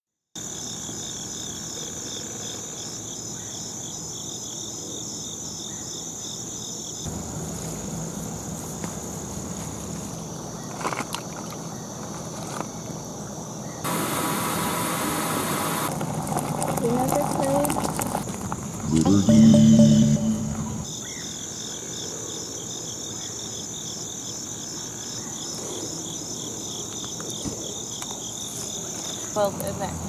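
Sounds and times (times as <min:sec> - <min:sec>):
high steady insect trill: 0:00.4 - 0:10.7, 0:19.3 - 0:30.0
loud hiss: 0:13.9 - 0:15.9.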